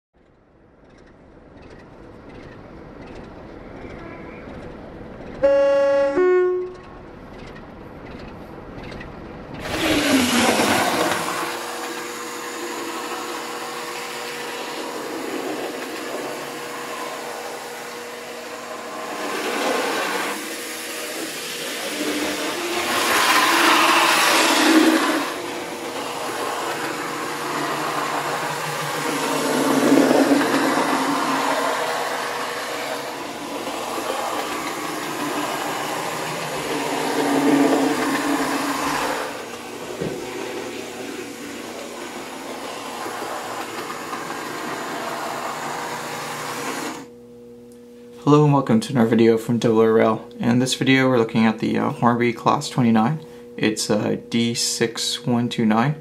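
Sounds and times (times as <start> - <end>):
diesel locomotive engine humming: 0.3 - 47.2
two-note locomotive horn: 5.4 - 7.0.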